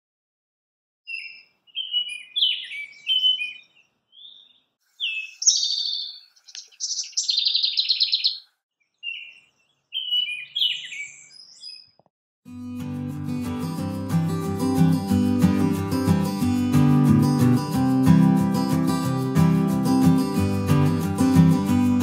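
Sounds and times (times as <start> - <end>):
songbirds singing: 1.1 - 12.1.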